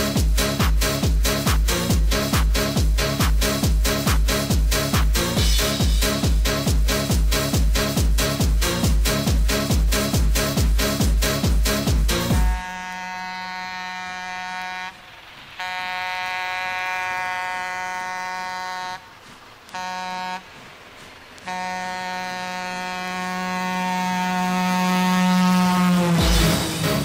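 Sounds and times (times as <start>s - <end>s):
drums: 0.0s - 12.7s, 26.0s - 27.0s
buzzy horn-like synthesizer tone: 12.2s - 19.0s, 19.8s - 20.5s, 21.5s - 27.0s.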